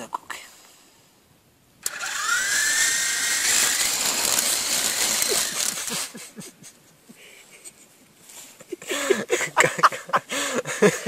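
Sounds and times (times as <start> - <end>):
electric motor whine: 1.8 - 6.2
toy helicopter rotor whir: 1.8 - 6.2.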